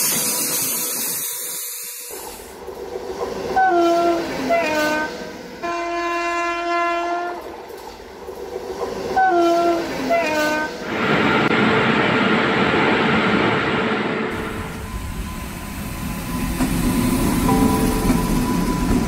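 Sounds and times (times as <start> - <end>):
train horn blasts: 3.6 - 7.4, 9.2 - 10.8
train rushing past: 7.3 - 19.0.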